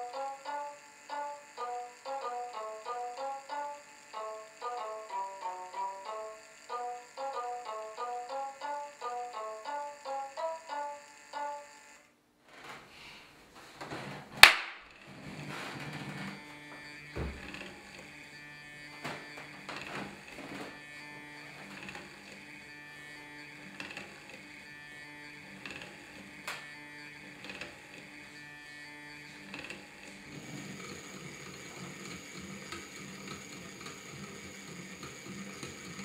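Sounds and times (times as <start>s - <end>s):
plucked-string music: 0.0s - 11.6s
small electric motor whirring: 0.0s - 12.1s, 14.9s - 36.0s.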